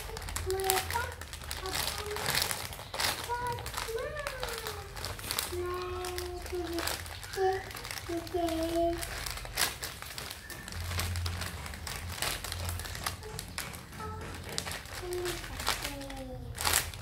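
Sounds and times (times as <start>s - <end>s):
plastic crinkling: 0.0s - 17.0s.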